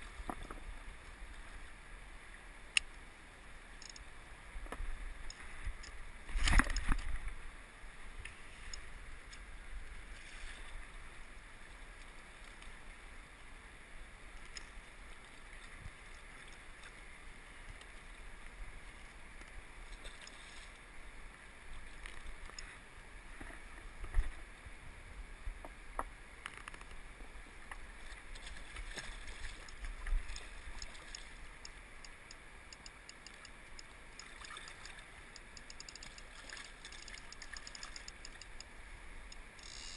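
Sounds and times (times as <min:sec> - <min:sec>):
fishing reel ticking: 0:03.8 - 0:04.1, 0:30.7 - 0:38.7, 0:39.3 - 0:39.9
water sloshing and splashing: 0:05.2 - 0:07.4, 0:27.7 - 0:31.9, 0:32.9 - 0:38.6.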